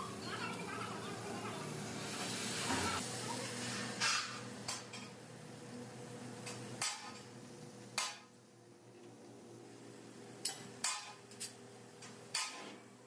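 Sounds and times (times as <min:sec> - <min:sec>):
cutting torch hissing: 0:01.2 - 0:04.1.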